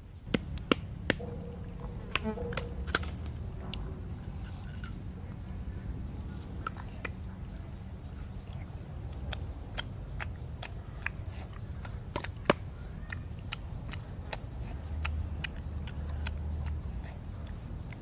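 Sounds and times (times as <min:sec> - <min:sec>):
eating clicks and smacks: 0:08.4 - 0:18.0.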